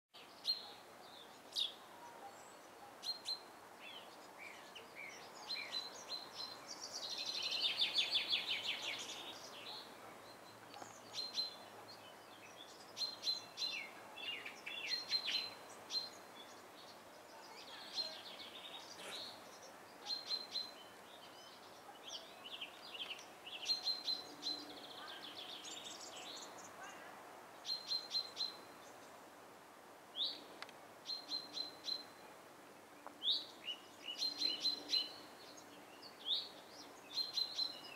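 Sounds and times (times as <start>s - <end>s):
small birds chirping: 0.2s - 37.9s.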